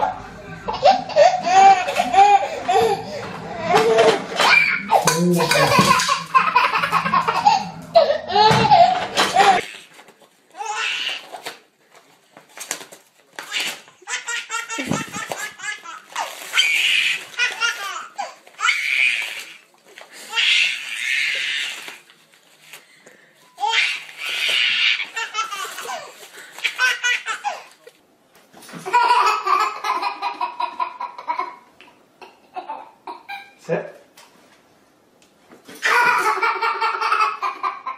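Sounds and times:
baby laughing: 0.0s - 9.9s, 13.4s - 19.1s, 23.6s - 27.8s, 28.8s - 33.6s, 35.8s - 37.9s.

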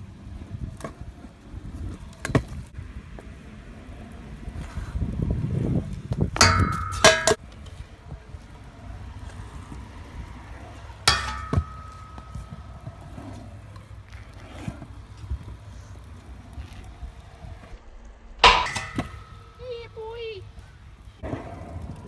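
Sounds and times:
scooter wheels rolling on concrete: 0.0s - 22.0s
scooter clanking on metal rail: 6.4s - 7.4s, 11.1s - 13.2s, 18.4s - 19.8s.

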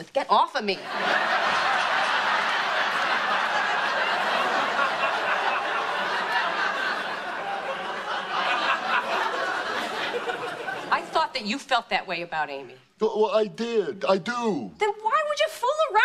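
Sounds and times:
studio audience laughing: 0.8s - 11.3s.

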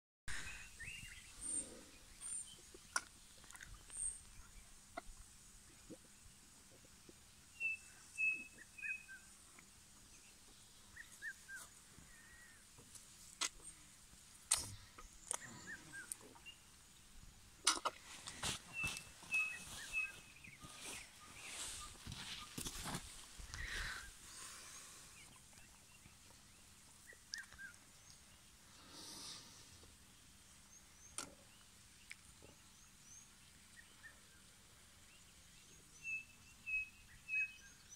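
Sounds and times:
bird chirps and whistles: 7.6s - 9.2s.

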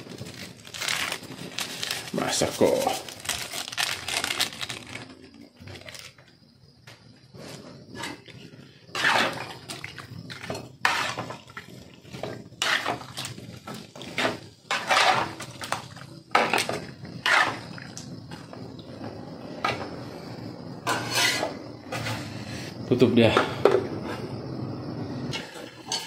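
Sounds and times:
metal spoon scraping in a wok: 14.1s - 15.5s, 17.2s - 17.7s, 20.8s - 22.2s.

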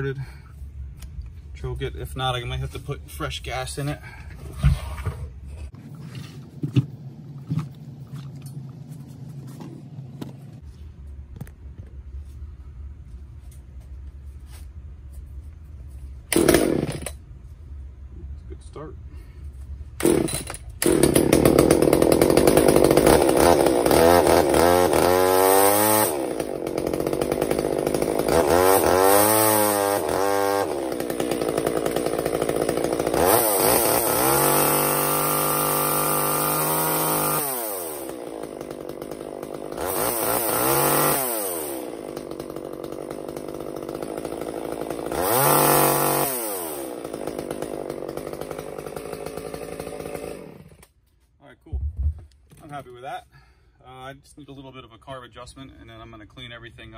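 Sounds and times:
chainsaw engine revving: 16.3s - 17.2s, 20.0s - 50.9s.

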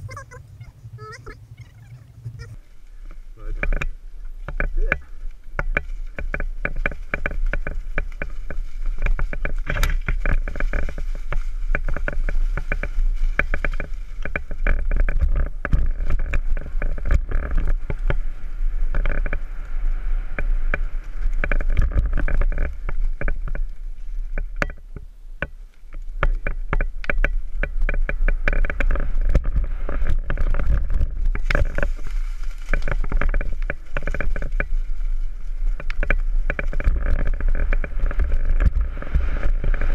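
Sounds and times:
low riding rumble: 0.0s - 39.9s
mountain bike clattering on trail: 2.2s - 39.9s.

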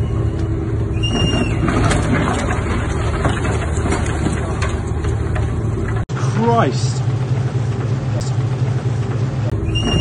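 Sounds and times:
ship engine humming: 0.0s - 10.0s
hull cracking and knocking: 1.2s - 6.1s.

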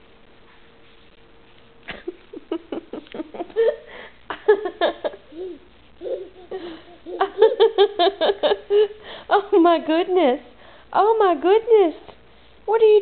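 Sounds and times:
faint steady hum: 0.0s - 13.0s
giggling laughter: 1.9s - 9.0s.

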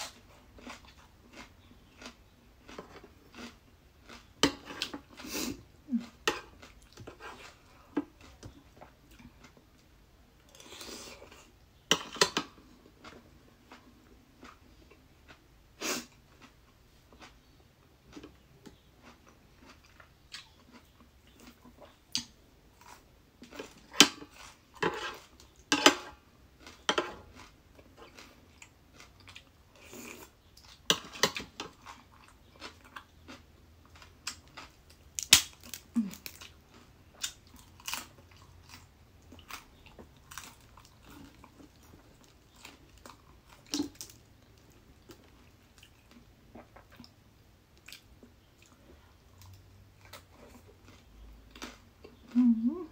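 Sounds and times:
crunchy bites: 34.0s - 44.2s.

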